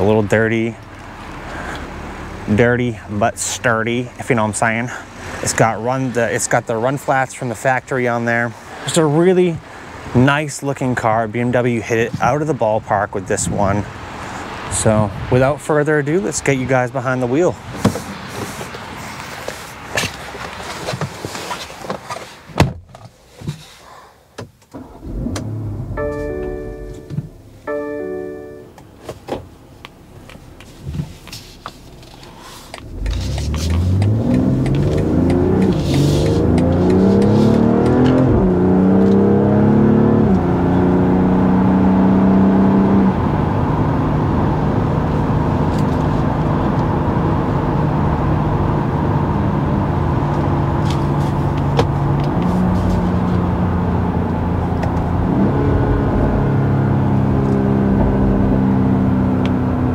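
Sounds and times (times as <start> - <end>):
car engine accelerating: 24.8 - 27.6, 32.0 - 59.9.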